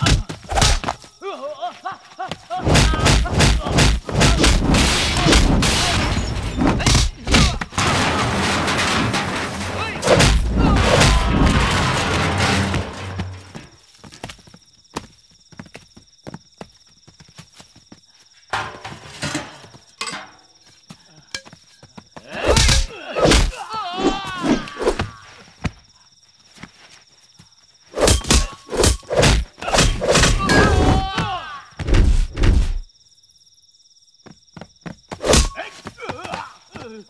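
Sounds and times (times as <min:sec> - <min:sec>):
punch thuds and whacks: 0:00.0 - 0:01.0, 0:02.6 - 0:06.0, 0:06.6 - 0:07.7, 0:28.0 - 0:31.0, 0:35.2 - 0:35.6
men grunting and crying out: 0:00.0 - 0:08.4, 0:09.8 - 0:11.7, 0:22.2 - 0:25.4, 0:29.5 - 0:31.8.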